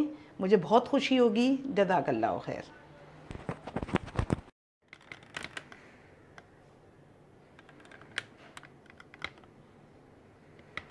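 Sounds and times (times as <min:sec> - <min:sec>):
faint background hum: 0:00.0 - 0:03.8, 0:04.9 - 0:10.9.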